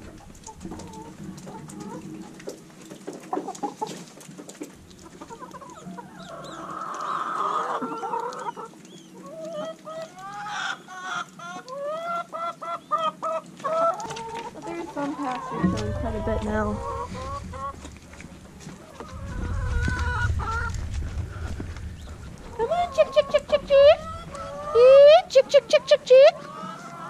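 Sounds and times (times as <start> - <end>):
hens clucking: 0.0 - 27.0.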